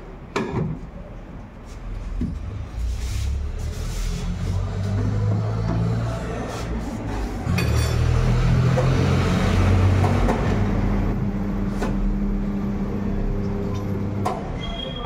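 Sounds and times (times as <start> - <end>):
tyre changer motor humming: 8.0 - 14.5.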